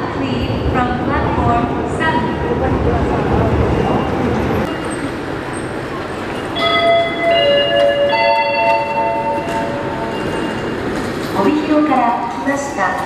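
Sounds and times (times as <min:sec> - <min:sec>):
station background noise: 0:00.0 - 0:13.0
bell-like public-address chime: 0:06.3 - 0:11.7.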